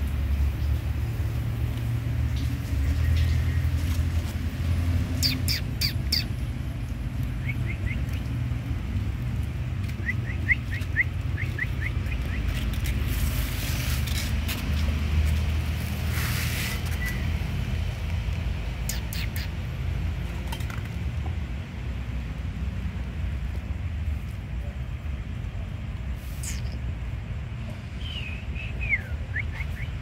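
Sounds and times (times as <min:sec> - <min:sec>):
small birds chirping: 0:02.3 - 0:04.4, 0:05.0 - 0:14.2, 0:16.1 - 0:17.6, 0:18.6 - 0:19.7, 0:26.4 - 0:26.8, 0:27.8 - 0:30.0
rustling hiss: 0:12.4 - 0:17.2, 0:26.0 - 0:27.0.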